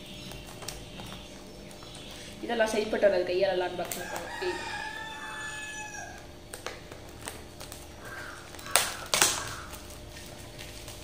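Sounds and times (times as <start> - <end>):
rooster crowing: 3.9 - 6.4
loud snaps: 6.1 - 9.9.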